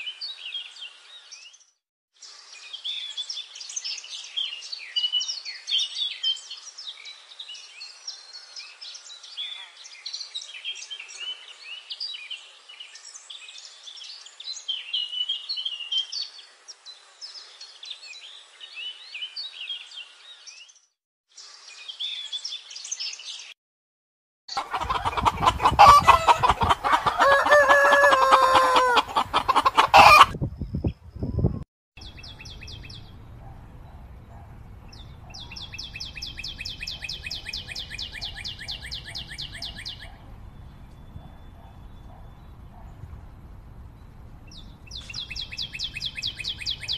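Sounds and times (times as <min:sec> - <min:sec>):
songbird chirping: 0:00.0 - 0:23.6, 0:24.5 - 0:46.9
chickens clucking: 0:24.5 - 0:30.4
rooster crowing: 0:24.6 - 0:30.4.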